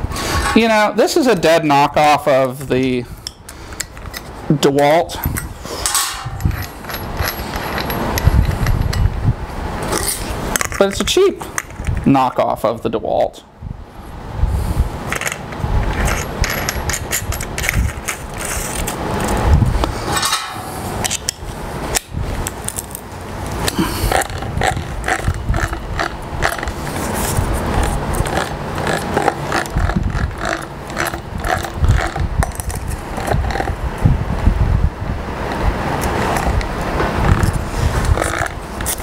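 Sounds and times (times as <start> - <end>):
angle grinder parts rattling: 5.2 - 9.1, 15.1 - 19.4, 22.5 - 33.8, 37.3 - 39.0.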